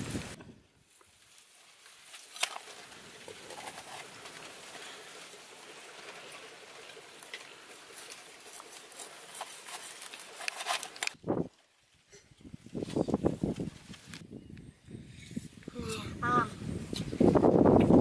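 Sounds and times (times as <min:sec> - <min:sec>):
crackling of charred crust: 0:00.0 - 0:14.2.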